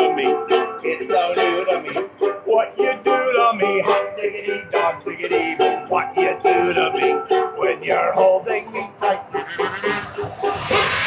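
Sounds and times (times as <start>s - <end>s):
banjo ukulele strummed: 0.0s - 11.0s
kazoo buzzing melody: 8.1s - 11.0s.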